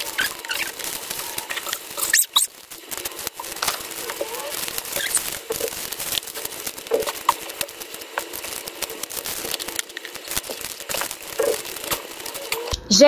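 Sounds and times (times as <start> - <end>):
plastic bags crinkling: 0.0 - 12.8.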